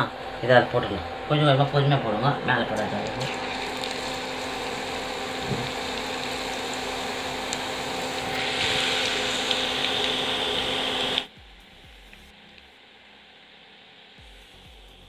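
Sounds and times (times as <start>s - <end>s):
banana slices sizzling in oil: 2.9s - 11.3s.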